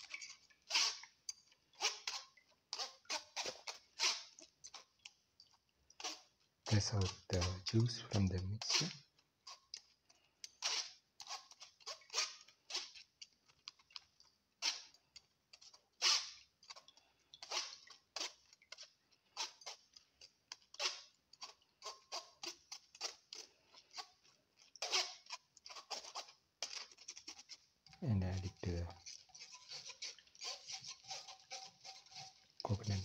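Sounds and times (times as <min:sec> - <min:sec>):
spoon scraping a metal sieve: 0:06.0 - 0:09.6, 0:10.6 - 0:13.0, 0:16.0 - 0:33.0.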